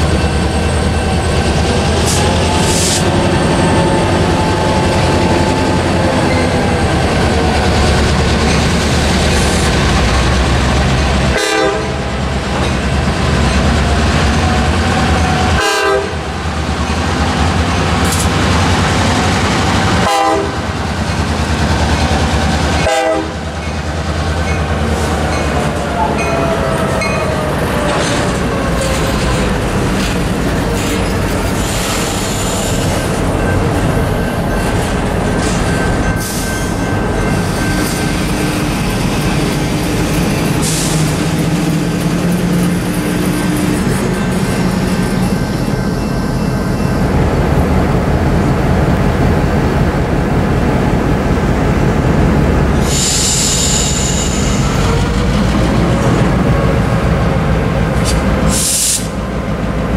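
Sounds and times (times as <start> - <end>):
locomotive engine rumble: 0.0 - 15.6
rail cars clattering: 0.0 - 59.9
train air horn: 11.3 - 12.0, 15.3 - 16.3, 20.0 - 20.6, 22.8 - 23.4.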